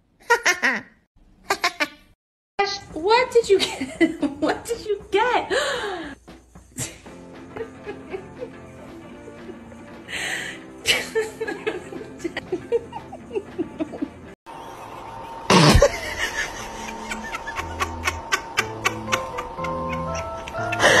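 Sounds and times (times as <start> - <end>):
light background music: 2.6 - 21.0
canned laughter: 10.9 - 21.0.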